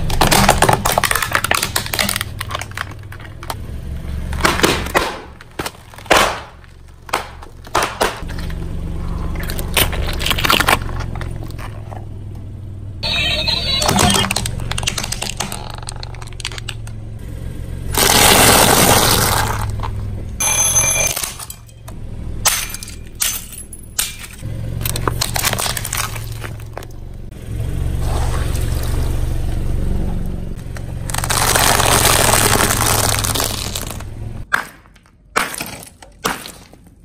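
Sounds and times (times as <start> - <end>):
tyre crushing objects: 0.0 - 12.1, 18.0 - 20.0, 24.8 - 26.9, 30.6 - 37.0
low engine hum: 0.0 - 34.5
sharp cracks: 4.3 - 8.5, 30.6 - 36.9.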